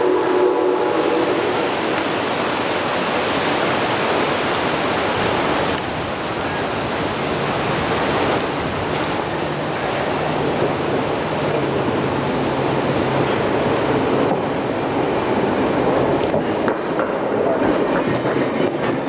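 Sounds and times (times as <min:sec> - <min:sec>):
steam locomotive whistle: 0:00.0 - 0:02.0
loud rushing hiss: 0:00.0 - 0:17.3.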